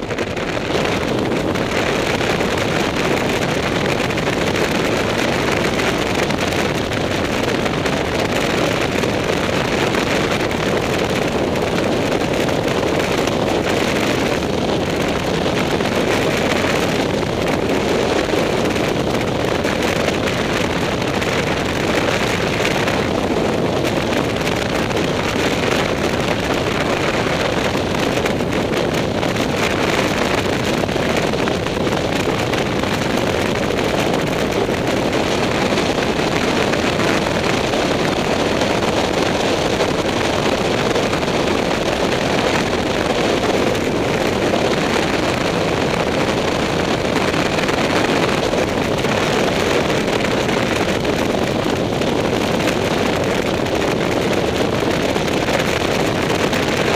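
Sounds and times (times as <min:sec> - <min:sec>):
wind rushing over microphone: 0:00.0 - 0:56.9.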